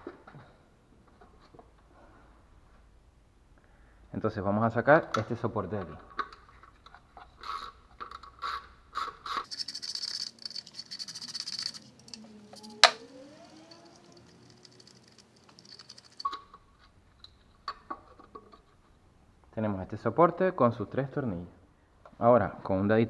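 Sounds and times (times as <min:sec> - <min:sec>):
rapid ratchet clicking: 0:09.3 - 0:16.4
metal clicks: 0:09.4 - 0:16.6.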